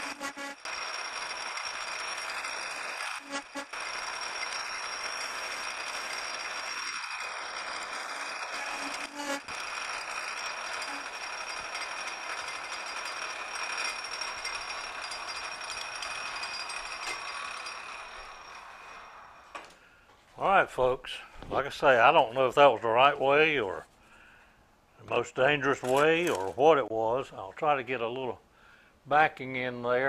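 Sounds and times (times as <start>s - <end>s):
cutting tool chattering: 0.0s - 19.0s
metal lathe cutting steel: 0.0s - 19.5s.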